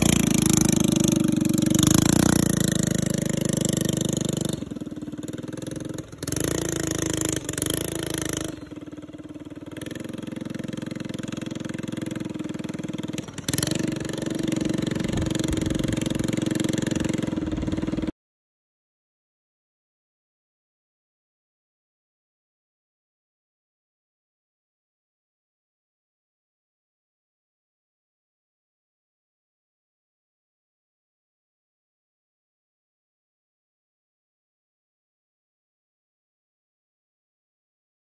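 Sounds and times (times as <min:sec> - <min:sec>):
go-kart engine running: 0:00.0 - 0:18.1.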